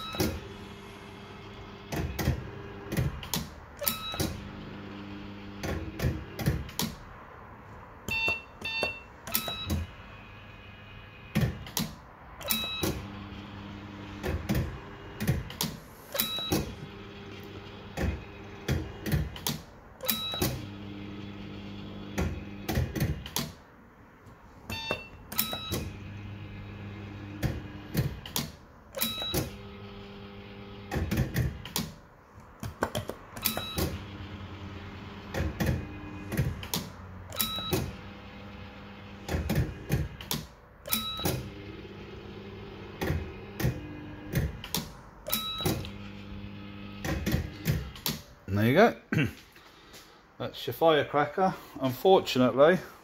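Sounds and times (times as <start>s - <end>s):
fruit machine reels humming: 0.0s - 3.1s, 3.8s - 6.4s, 12.4s - 19.4s, 20.0s - 23.3s, 25.4s - 28.3s, 29.0s - 31.6s, 33.4s - 36.6s, 40.9s - 44.7s, 45.3s - 48.0s
short electronic beeps: 8.1s - 9.8s, 24.7s - 25.9s.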